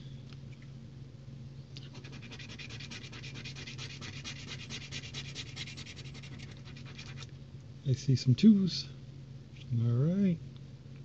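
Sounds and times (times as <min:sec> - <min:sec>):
lottery ticket being scratched: 0:01.8 - 0:07.3.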